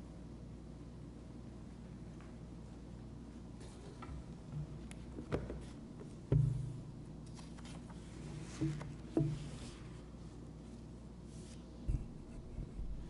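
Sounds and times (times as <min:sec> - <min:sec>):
paper rustling: 0:07.2 - 0:10.0.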